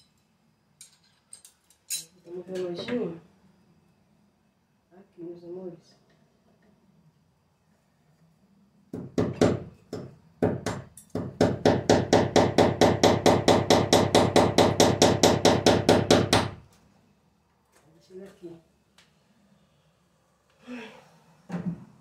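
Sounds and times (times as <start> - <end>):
hammer driving a nail: 9.0 - 16.6.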